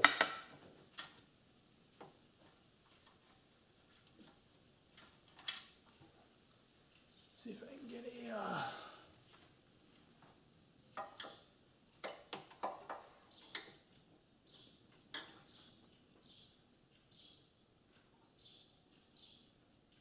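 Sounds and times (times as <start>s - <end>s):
small bird chirping: 6.9s - 7.6s, 10.7s - 20.0s.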